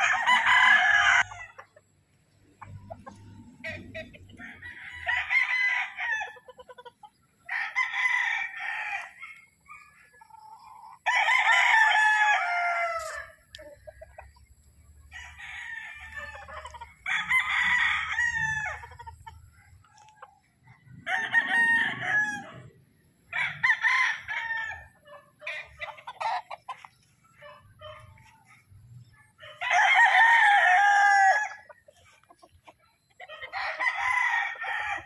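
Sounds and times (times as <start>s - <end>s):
roosters crowing: 0.0s - 1.9s, 2.6s - 14.2s, 15.0s - 20.2s, 20.9s - 28.6s, 29.3s - 35.0s.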